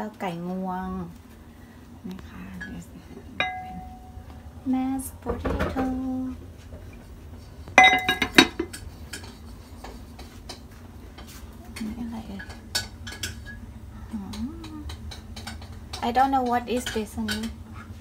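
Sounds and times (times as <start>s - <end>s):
cookware clinking with metallic ring: 3.4s - 4.3s, 7.8s - 8.8s
pots lids and utensils clicking: 3.4s - 4.3s, 7.8s - 9.4s, 12.4s - 13.6s, 14.6s - 17.6s.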